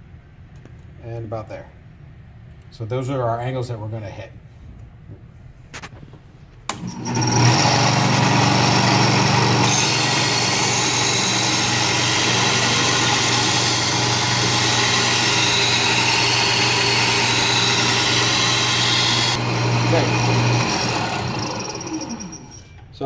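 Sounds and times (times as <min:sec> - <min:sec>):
belt sander humming: 0:06.7 - 0:22.6.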